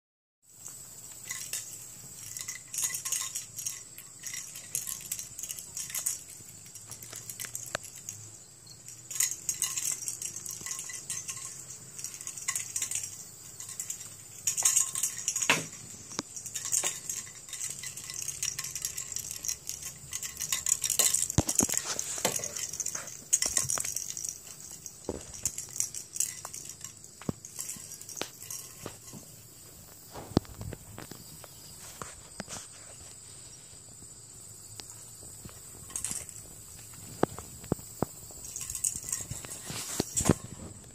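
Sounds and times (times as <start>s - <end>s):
light clicks and clinks: 0.5s - 33.2s, 34.7s - 40.9s
kitten scuffling and rustling: 9.0s - 34.1s, 34.8s - 40.9s.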